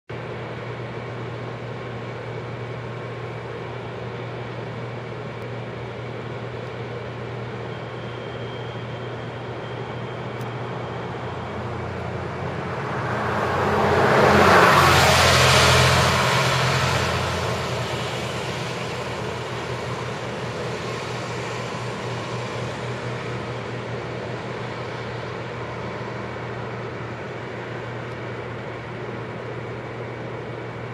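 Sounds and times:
constant low hum: 0:00.1 - 0:30.9
road vehicle passing: 0:10.7 - 0:23.8.

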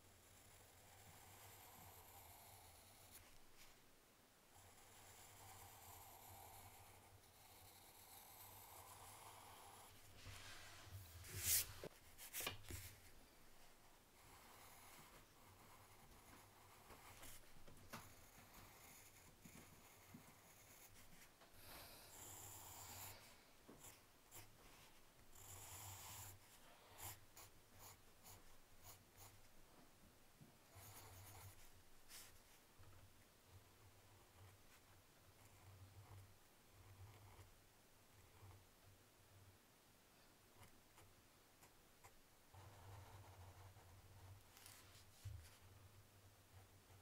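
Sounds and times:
pencil scratching on paper: 0:00.1 - 0:03.7, 0:04.6 - 0:29.5, 0:30.7 - 0:32.6, 0:33.9 - 0:37.5, 0:42.5 - 0:45.6
rubbing against paper: 0:10.2 - 0:13.1.

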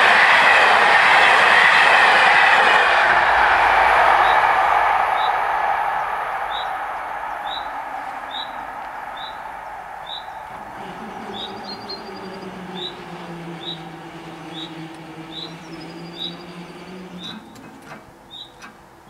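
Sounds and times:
train rumbling: 0:00.0 - 0:19.0
low electric motor hum: 0:02.9 - 0:19.0
bird chirps: 0:05.2 - 0:19.0.

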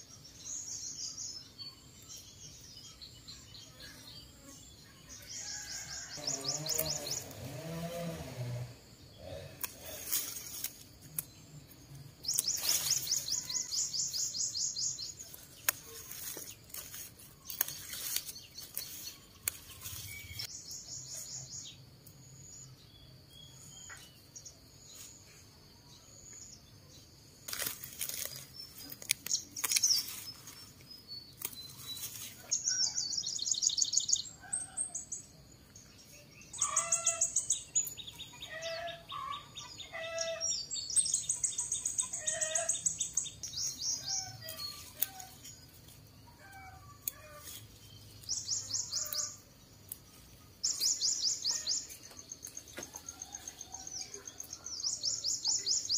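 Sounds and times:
small birds chirping: 0:00.0 - 0:55.9
leafy greens snapped by hand: 0:15.6 - 0:20.1, 0:27.4 - 0:30.1, 0:31.4 - 0:31.6.

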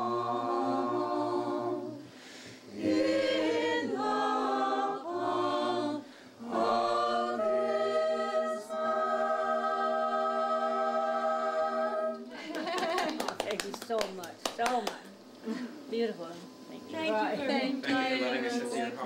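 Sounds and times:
choir singing in harmony: 0:00.0 - 0:12.4, 0:16.8 - 0:19.0.

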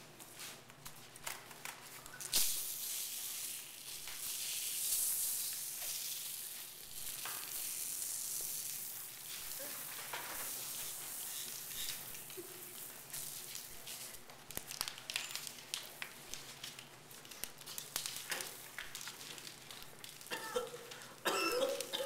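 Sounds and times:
dense crackly hiss: 0:00.9 - 0:22.0
paper bags rustling: 0:09.1 - 0:22.0.

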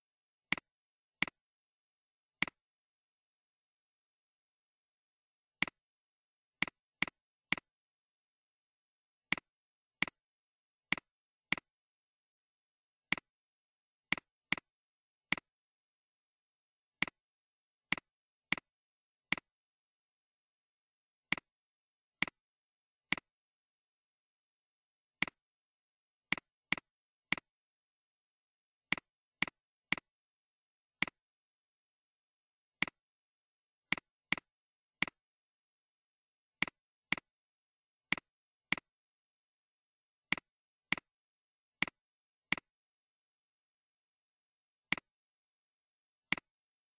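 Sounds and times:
computer mouse clicks: 0:02.4 - 0:02.6, 0:25.2 - 0:25.4, 0:41.8 - 0:42.8, 0:46.3 - 0:46.6.

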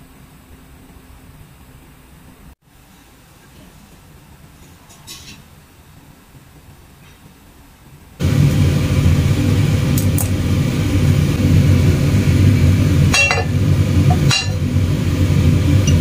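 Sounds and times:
stove burner low rumble: 0:07.8 - 0:16.0.

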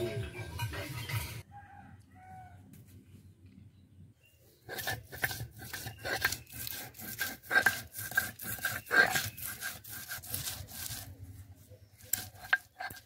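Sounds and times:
stone roller grinding paste on slab: 0:04.7 - 0:11.2, 0:12.0 - 0:13.0.

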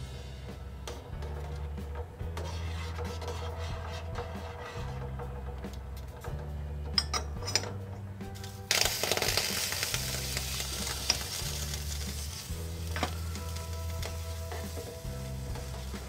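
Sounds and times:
soft background music: 0:00.0 - 0:16.0
water boiling and bubbling: 0:08.7 - 0:16.0.

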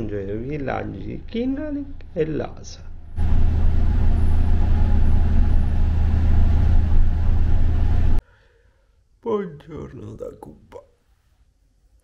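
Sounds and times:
road noise: 0:02.9 - 0:08.2
bus engine hum: 0:03.0 - 0:08.2.

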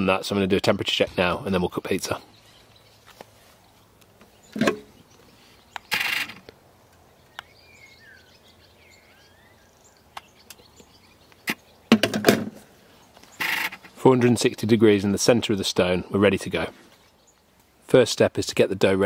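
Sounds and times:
faint birdsong chirps: 0:00.0 - 0:19.0
metal knocks and scrapes: 0:04.5 - 0:04.9.

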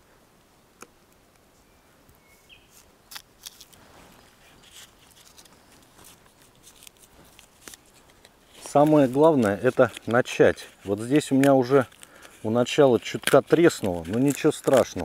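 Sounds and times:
bark cracking: 0:11.2 - 0:15.0.

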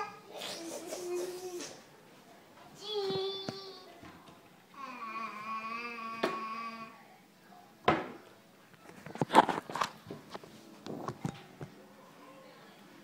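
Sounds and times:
thump at refrigerator: 0:07.8 - 0:08.2.

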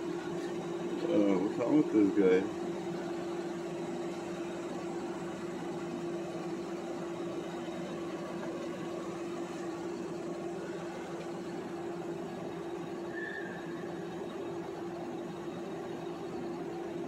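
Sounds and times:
steady mechanical hum: 0:00.0 - 0:17.0.

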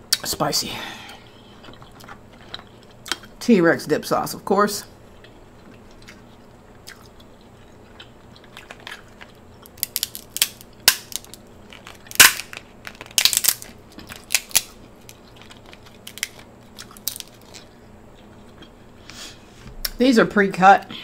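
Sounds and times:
crab shell cracking and crunching: 0:05.2 - 0:18.8.

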